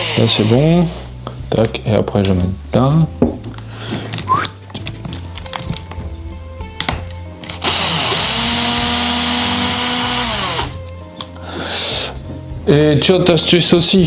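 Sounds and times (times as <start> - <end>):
electric screwdriver motor whine: 0.0 - 0.4, 7.6 - 10.8.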